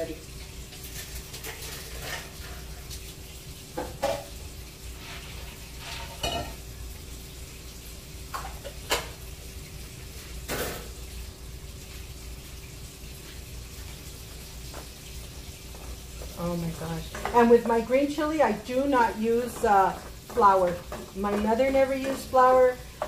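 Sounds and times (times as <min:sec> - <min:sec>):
faint sizzle from pots: 0:00.0 - 0:23.0
dishes and cups clinking: 0:05.9 - 0:06.6.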